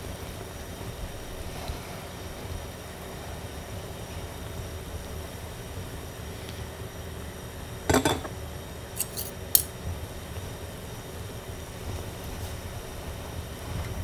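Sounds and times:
sharp clinks on ceramic plate: 0:07.9 - 0:08.3
fork clattering against dishes: 0:07.9 - 0:08.4.

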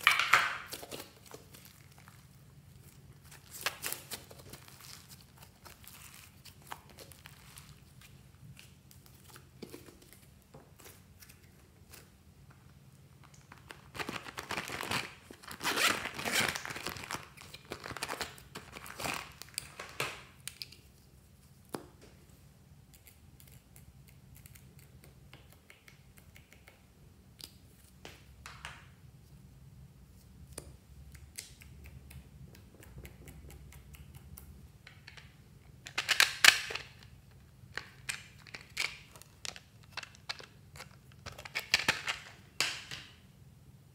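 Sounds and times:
slime and plastic crinkling: 0:00.0 - 0:22.0.

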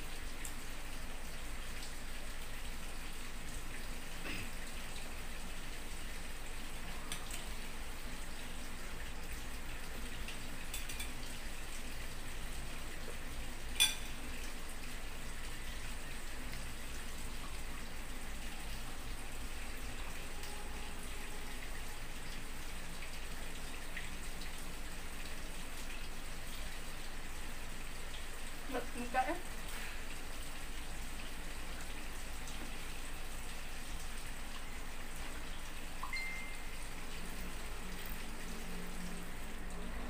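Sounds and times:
fork clinking on plate: 0:13.8 - 0:14.2.

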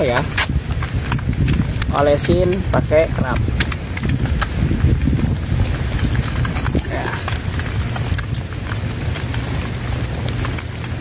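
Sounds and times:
sharp clicks and crackles: 0:00.0 - 0:11.0
wind buffeting microphone: 0:00.0 - 0:11.0.

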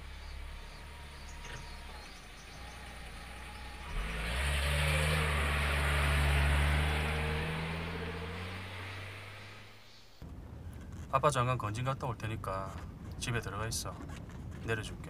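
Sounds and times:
car passing by: 0:00.9 - 0:10.0.

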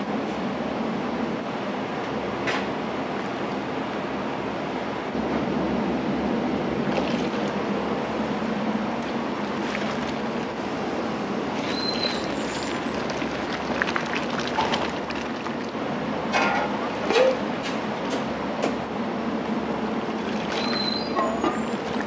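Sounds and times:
steady rush of kitchen noise: 0:00.0 - 0:22.0
brief squeaks: 0:11.6 - 0:12.7, 0:20.6 - 0:21.8.

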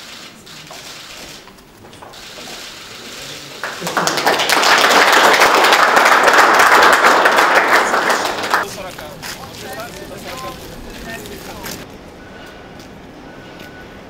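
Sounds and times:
people applauding: 0:02.1 - 0:11.8.

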